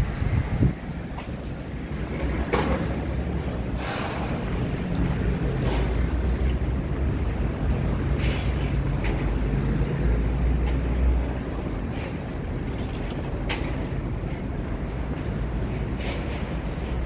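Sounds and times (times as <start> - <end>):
traffic engine rumble: 0.0 - 17.0.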